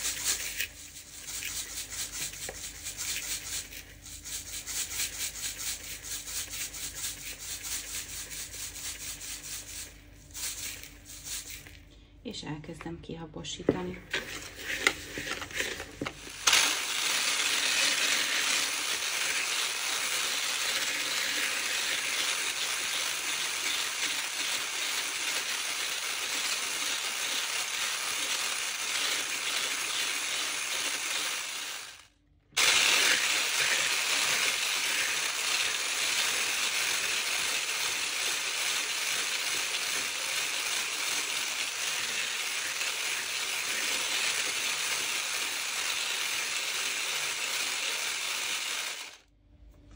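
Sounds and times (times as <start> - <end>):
electric mixer whisking: 14.2 - 49.2.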